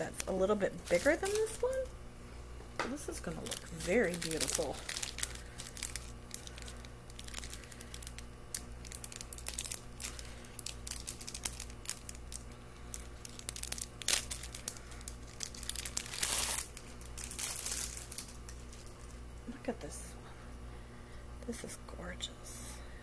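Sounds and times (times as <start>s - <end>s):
plastic bag crinkling: 0.0s - 1.9s, 3.0s - 19.3s.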